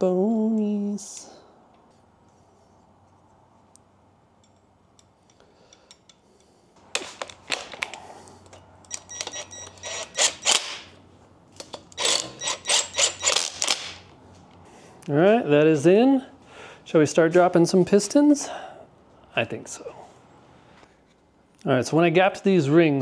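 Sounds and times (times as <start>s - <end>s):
metal parts clinking: 7.0s - 10.9s, 11.6s - 14.1s
cordless driver whirring: 9.0s - 10.8s, 11.8s - 13.8s.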